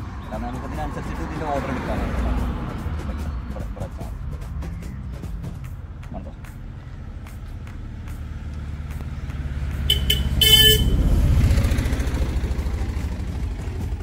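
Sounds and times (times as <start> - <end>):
vehicle engine passing: 0.0 - 14.0
car horn toots: 9.8 - 11.0.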